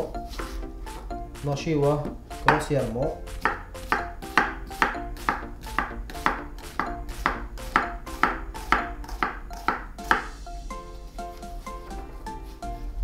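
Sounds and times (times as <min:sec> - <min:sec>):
knife chopping on cutting board: 0:02.0 - 0:10.4.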